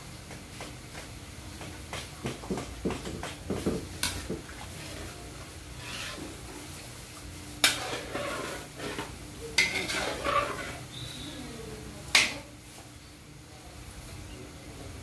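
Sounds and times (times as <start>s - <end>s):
ladle stirring and scraping in wok: 3.2s - 11.1s
ladle clanking against pan: 7.6s - 10.8s.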